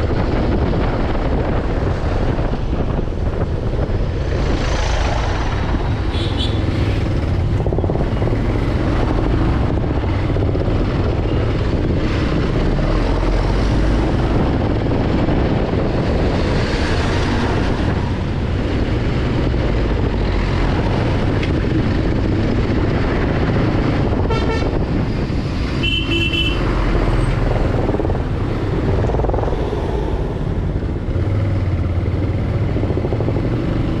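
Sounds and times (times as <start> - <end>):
motorcycle engine and road noise: 0.0 - 34.0
vehicle horn honking: 6.1 - 6.6, 24.2 - 24.8, 25.8 - 26.6.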